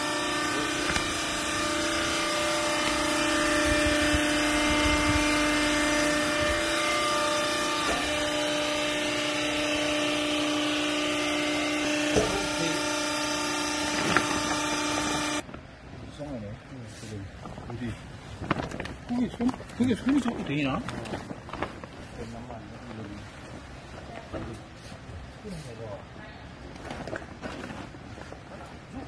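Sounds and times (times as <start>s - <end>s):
hydraulic power unit humming: 0.0s - 15.8s.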